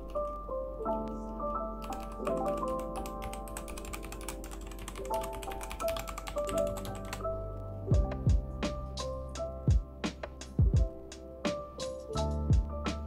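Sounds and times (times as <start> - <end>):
background music: 0.0 - 13.0
mechanical keyboard clicks: 1.8 - 7.2.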